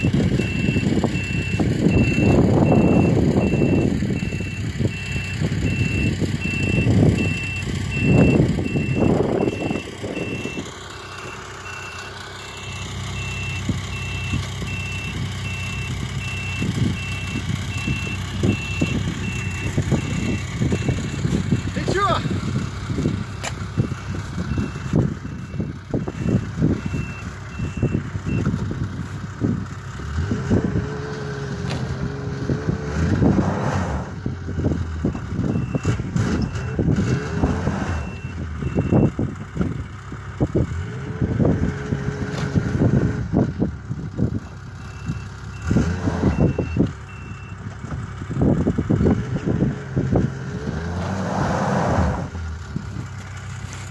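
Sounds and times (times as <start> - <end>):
high beeps: 0.0 - 21.7, 23.8 - 28.5
snowmobile engine revving: 35.8 - 38.0, 49.1 - 52.6.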